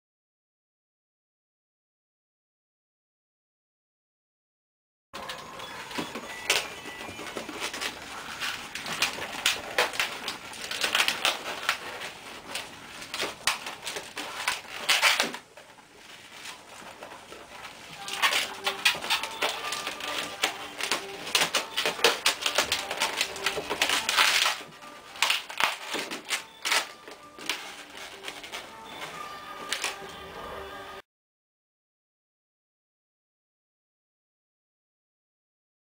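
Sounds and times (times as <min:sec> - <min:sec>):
latex balloon squeaking and creaking: 0:05.2 - 0:30.8.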